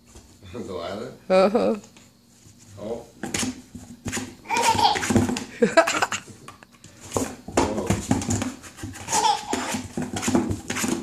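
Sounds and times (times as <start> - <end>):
toddler laughing: 4.4 - 6.3, 9.0 - 9.9.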